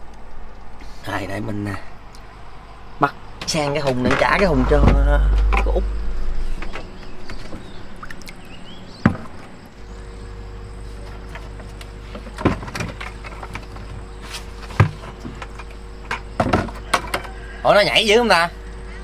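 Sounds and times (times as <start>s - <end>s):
steady low hum: 0.0s - 16.8s
plastic buckets knocking on deck: 16.4s - 17.2s.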